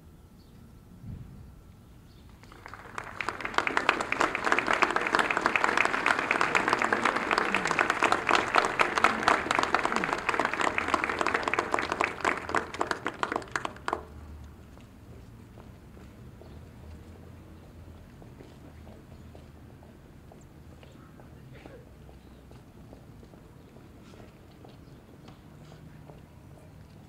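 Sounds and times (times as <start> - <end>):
audience applauding: 2.4 - 14.2.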